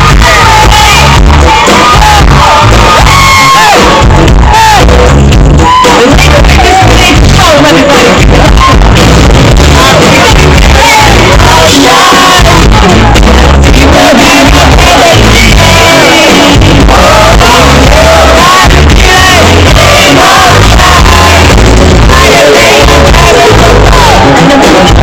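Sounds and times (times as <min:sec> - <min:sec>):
band with heavy bass: 0:00.0 - 0:25.0
woman singing: 0:09.7 - 0:25.0.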